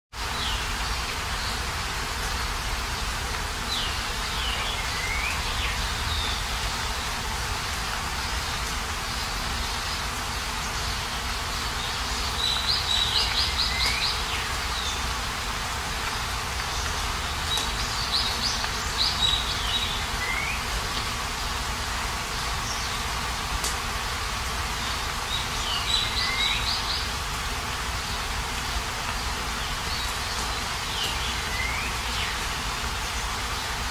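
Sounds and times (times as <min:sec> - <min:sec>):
steady rain: 0:00.1 - 0:33.9
high chirping calls: 0:11.6 - 0:15.2.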